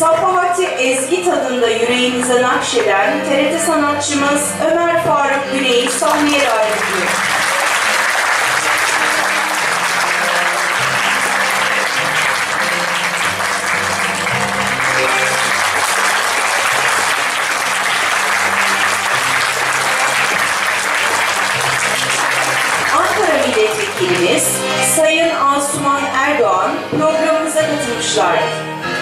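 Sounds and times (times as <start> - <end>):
background music held notes: 0.0 - 29.0
audience applause: 5.8 - 24.9.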